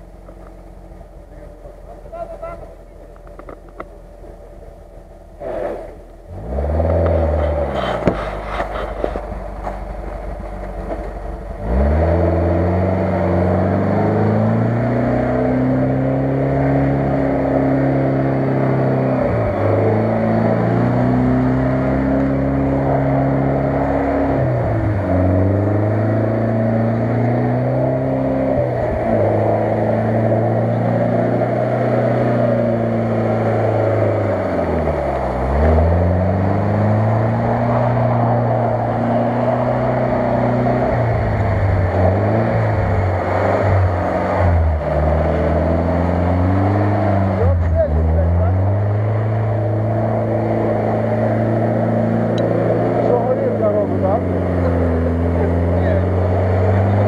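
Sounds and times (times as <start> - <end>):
engine revving: 0.0 - 57.0.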